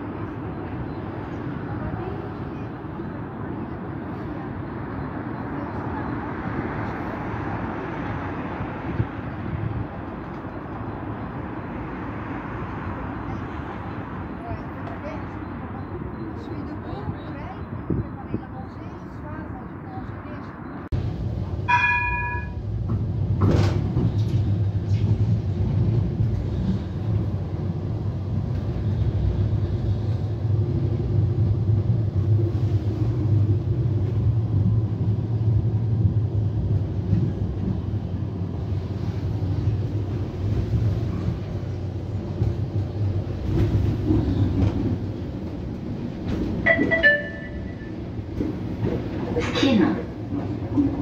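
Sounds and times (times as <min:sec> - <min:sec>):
tram wheels rumbling on rails: 0:00.0 - 0:51.0
short pitched tone: 0:46.6 - 0:48.0.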